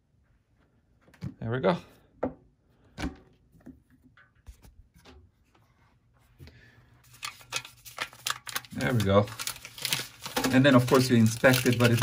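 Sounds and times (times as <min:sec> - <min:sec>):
plastic wrappers crinkling: 0:07.1 - 0:12.0.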